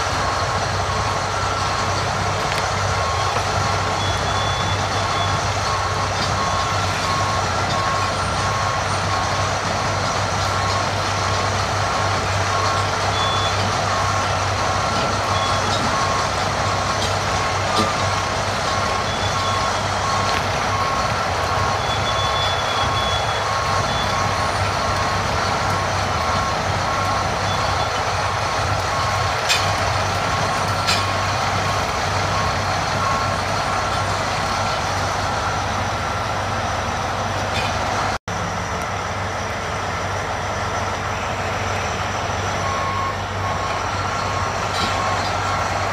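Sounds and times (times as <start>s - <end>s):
backup alarm beeping: 0.0s - 9.7s, 15.0s - 34.5s, 42.6s - 45.6s
heavy diesel engines running: 0.0s - 45.9s.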